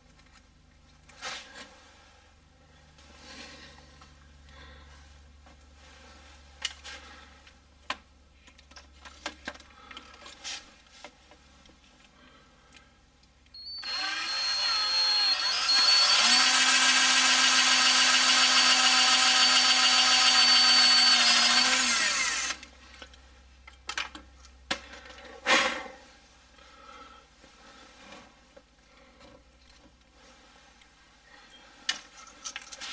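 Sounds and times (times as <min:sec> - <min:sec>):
cordless drill whining: 0:13.6 - 0:22.7.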